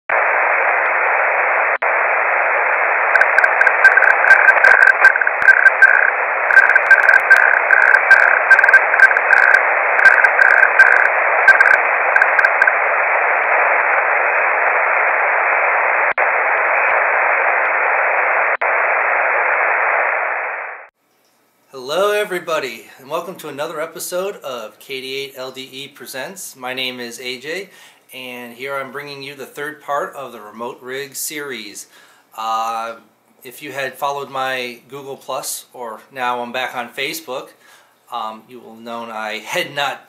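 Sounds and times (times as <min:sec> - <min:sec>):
faint crackles: 0:00.1 - 0:19.6
radio static hiss: 0:00.1 - 0:20.9
morse code tone: 0:03.2 - 0:12.7.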